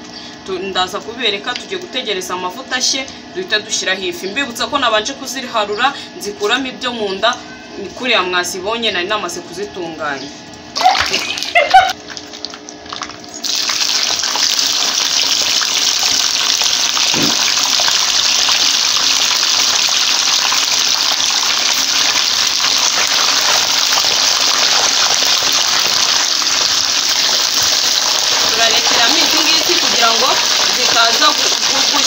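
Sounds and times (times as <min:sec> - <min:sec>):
fish frying in oil: 0:11.2 - 0:32.0.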